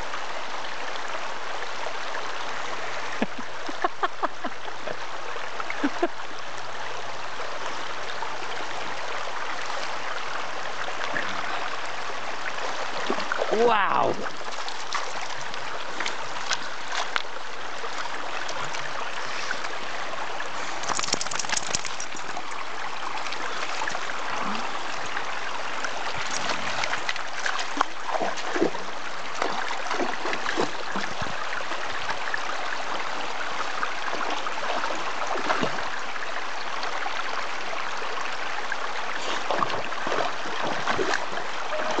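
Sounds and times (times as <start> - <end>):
creek running over stones: 0.0 - 42.0
dog splashing through water: 20.7 - 22.4, 26.1 - 31.4, 39.2 - 42.0.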